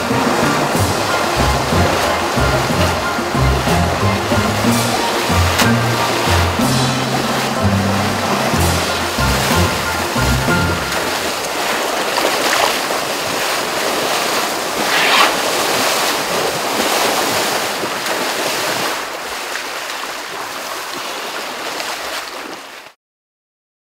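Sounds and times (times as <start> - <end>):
loud splash: 0.0 - 23.0
river water rushing and splashing: 0.0 - 23.0.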